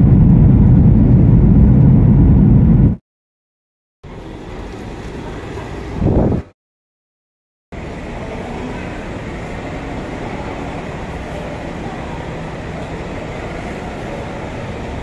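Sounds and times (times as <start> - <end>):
traffic noise: 7.8 - 15.0.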